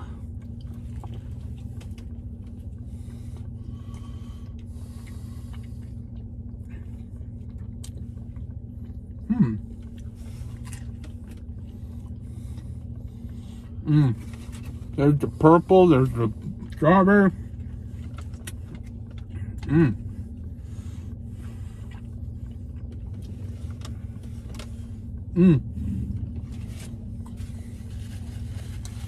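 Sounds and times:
low hum in truck cab: 0:00.0 - 0:29.0
person chewing food: 0:00.2 - 0:15.0, 0:16.3 - 0:16.8, 0:17.5 - 0:29.0
person humming mm: 0:25.3 - 0:25.8.

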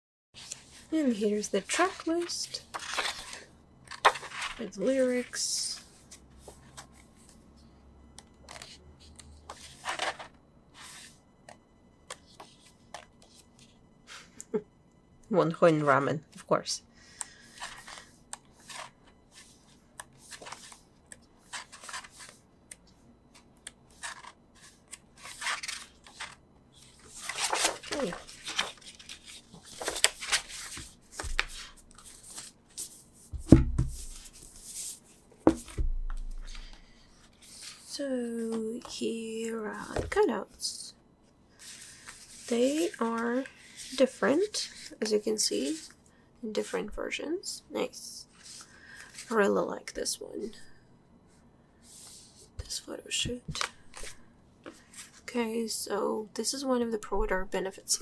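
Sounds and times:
pages rustling: 0:01.7 - 0:05.3, 0:08.5 - 0:11.2, 0:17.3 - 0:22.4, 0:23.4 - 0:37.9, 0:41.6 - 0:45.0
book thumping on desk: 0:33.4 - 0:34.1, 0:35.5 - 0:36.4.

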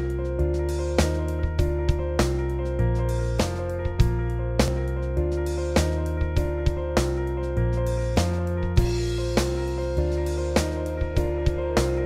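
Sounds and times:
pitched notes on a regular beat: 0:00.0 - 0:12.0.

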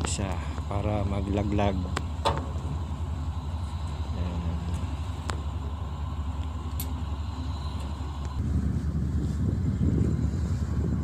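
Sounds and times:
ship engine rumbling: 0:00.0 - 0:11.0.

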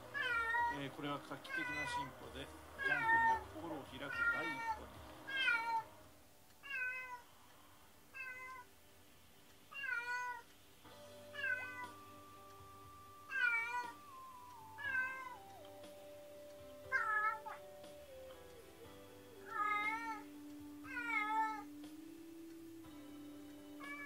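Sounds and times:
soft music with long held notes: 0:00.0 - 0:24.0
cat meowing: 0:00.1 - 0:00.8, 0:01.5 - 0:02.1, 0:02.8 - 0:05.9, 0:06.6 - 0:07.3, 0:08.1 - 0:08.7, 0:09.7 - 0:10.5, 0:11.3 - 0:12.0, 0:13.2 - 0:15.4, 0:16.9 - 0:17.6, 0:19.5 - 0:21.7, 0:23.8 - 0:24.0.

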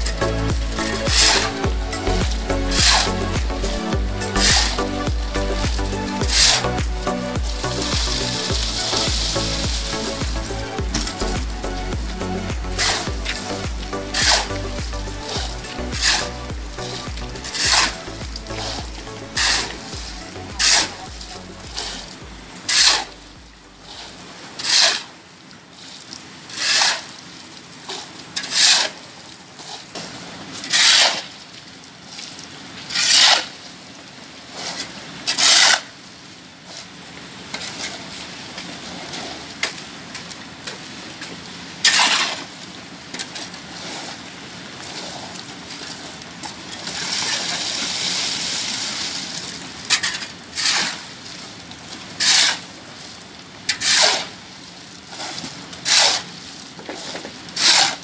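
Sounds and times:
shovel scraping concrete floor: 0:00.0 - 0:23.2, 0:23.9 - 0:25.1, 0:26.5 - 0:27.1, 0:27.9 - 0:29.0, 0:30.6 - 0:31.3, 0:32.9 - 0:33.6, 0:34.6 - 0:35.9, 0:41.8 - 0:42.5, 0:49.9 - 0:51.1, 0:52.2 - 0:52.7, 0:53.7 - 0:54.3, 0:55.1 - 0:58.0.

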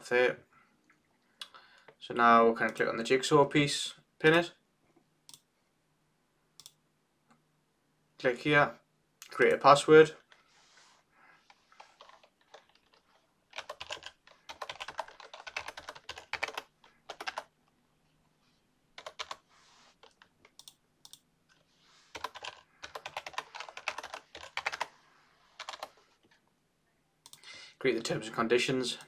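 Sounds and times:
typing on keyboard: 0:11.8 - 0:17.5, 0:19.0 - 0:19.4, 0:22.1 - 0:24.9, 0:25.6 - 0:26.0.

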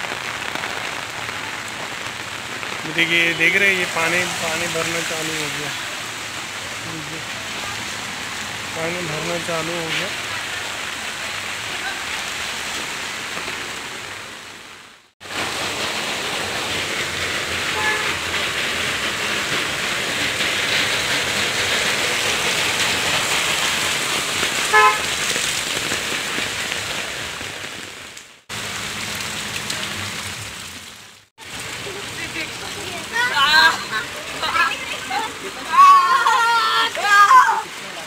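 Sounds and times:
heavy rain pouring on street: 0:00.0 - 0:38.0
vehicle horn toots: 0:17.7 - 0:18.2, 0:24.6 - 0:25.3.

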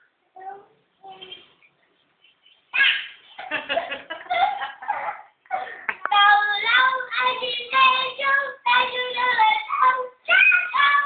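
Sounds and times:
boy singing pop song: 0:06.0 - 0:11.0.

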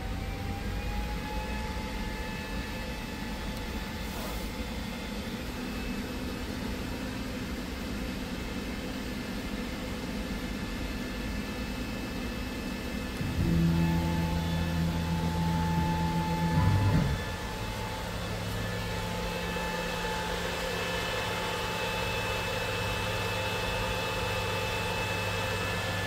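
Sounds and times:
machine hum and hiss: 0:00.0 - 0:26.0
faint rising whine: 0:13.0 - 0:23.8
louder low-toned hum: 0:13.2 - 0:20.8.

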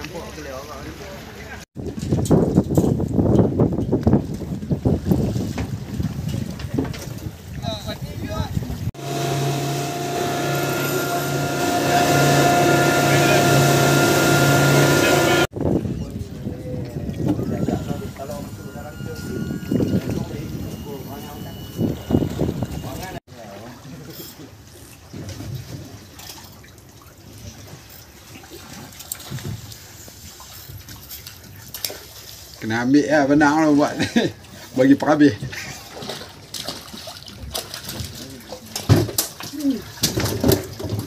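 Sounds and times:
hull and wake spray rushing: 0:04.5 - 0:32.6
boat engine drone: 0:09.0 - 0:15.5, 0:17.2 - 0:23.2.

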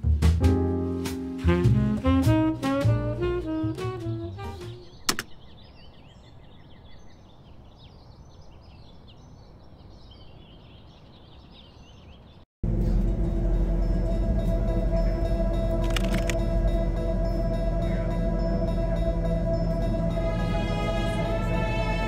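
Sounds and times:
jazz music: 0:00.0 - 0:04.9, 0:12.7 - 0:22.0
small birds chirping: 0:04.4 - 0:12.5
sharp click: 0:05.1 - 0:05.4.

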